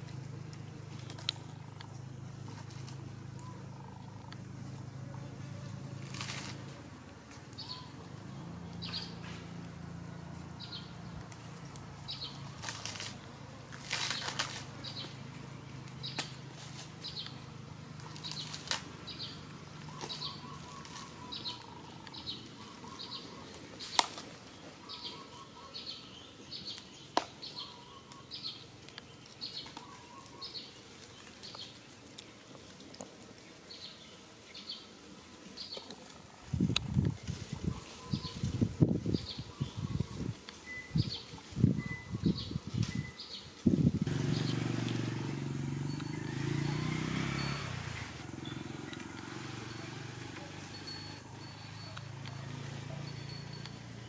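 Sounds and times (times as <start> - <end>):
sharp clicks and crackles: 0.0 - 4.4, 31.0 - 33.4.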